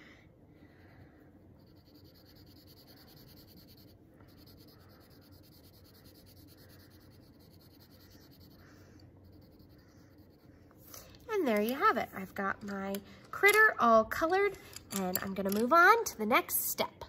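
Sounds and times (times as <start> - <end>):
pencil scratching on paper: 1.6 - 10.8.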